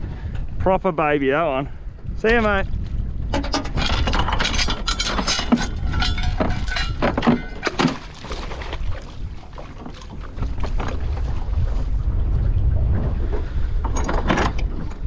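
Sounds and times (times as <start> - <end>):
crab pot clattering in metal boat: 3.2 - 8.9.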